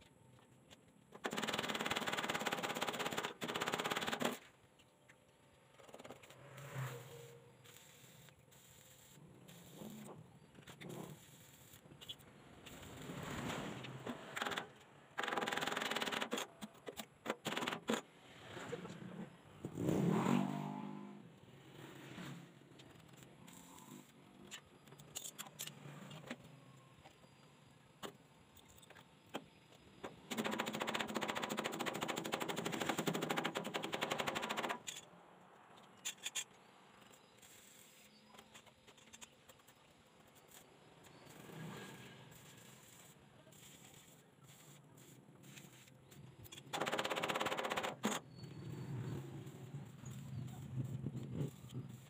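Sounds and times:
brush scraping metal weld: 6.1 - 12.9.

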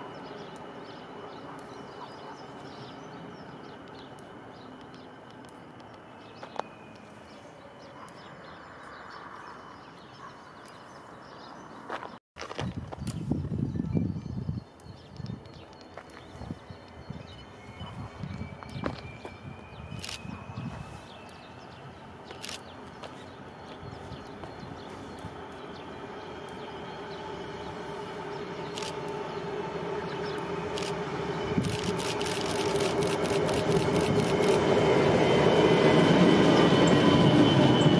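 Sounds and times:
diesel locomotive engine drone: 0.0 - 11.9, 13.3 - 37.9
small birds chirping: 0.1 - 12.2, 13.0 - 29.5, 30.1 - 34.6
train wheels clicking: 30.1 - 34.8.

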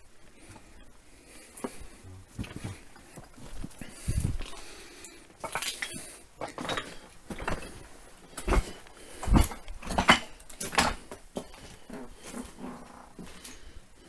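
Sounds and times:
footsteps crunching on rubble: 5.4 - 12.6.

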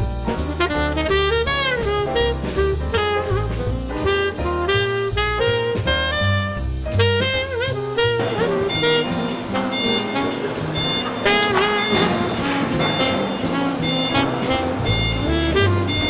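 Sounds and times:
drum kit with cymbals: 0.0 - 16.0
jazz horn melody: 0.0 - 16.0
walking bass line: 0.0 - 16.0.

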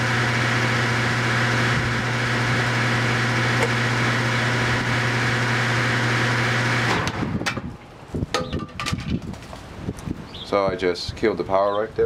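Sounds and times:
condenser fan motor humming: 0.0 - 7.8.

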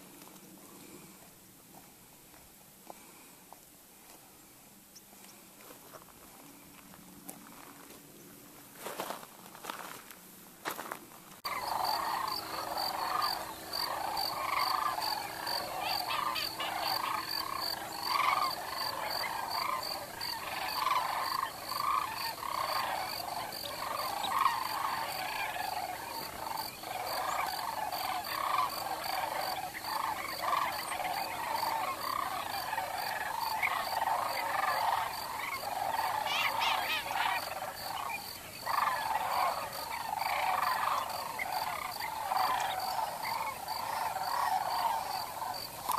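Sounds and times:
chorus of animal calls: 11.4 - 45.9.

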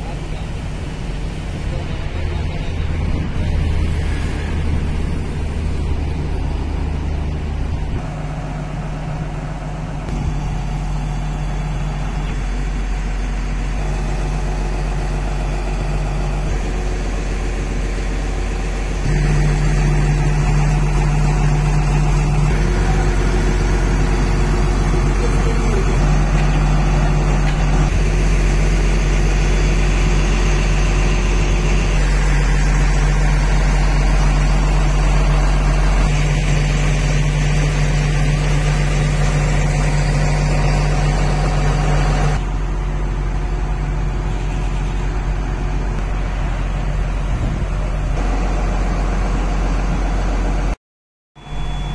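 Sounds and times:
excavator diesel engine idling: 0.0 - 50.8, 51.4 - 51.9.

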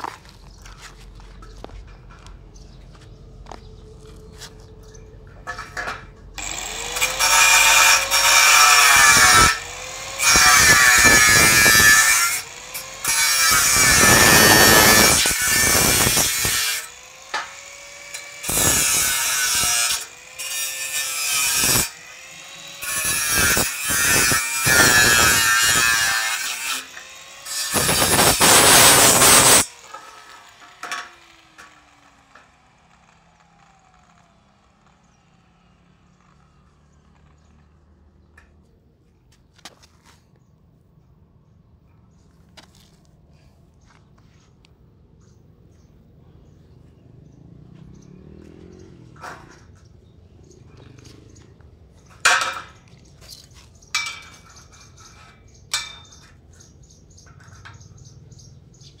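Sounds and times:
angle grinder on steel: 5.4 - 38.2.

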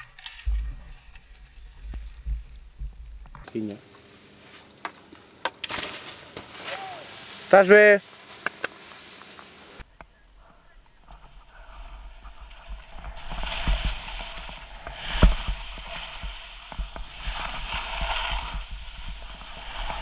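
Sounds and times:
low rumble: 0.3 - 3.4, 9.8 - 20.0
skis scraping over snow: 5.8 - 20.0.

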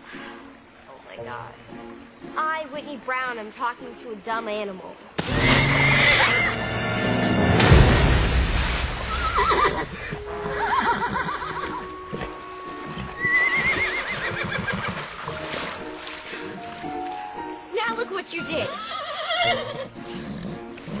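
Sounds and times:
water splashing: 5.0 - 18.6
horse whinnying: 5.2 - 6.6, 9.2 - 15.3, 18.6 - 21.0.

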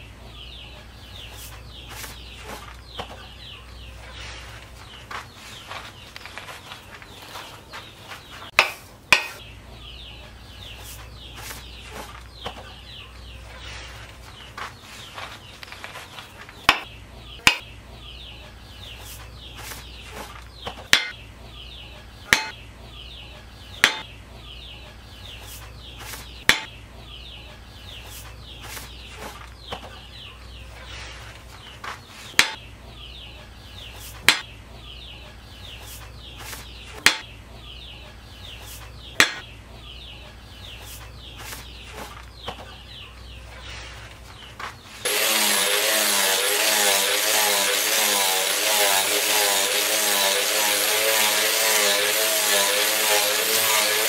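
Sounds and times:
birds chirping: 0.0 - 54.0.

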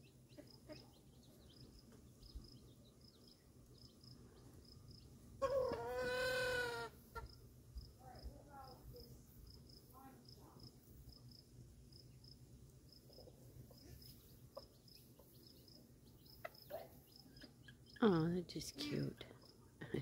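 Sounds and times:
loud drawn-out animal call: 5.4 - 7.0.

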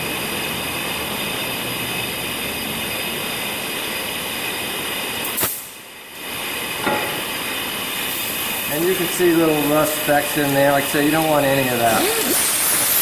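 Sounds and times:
shop machinery whirring: 0.0 - 13.0.

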